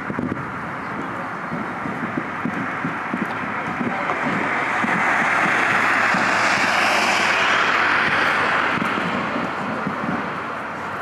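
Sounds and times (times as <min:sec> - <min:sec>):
airplane engine rushing: 0:00.0 - 0:11.0.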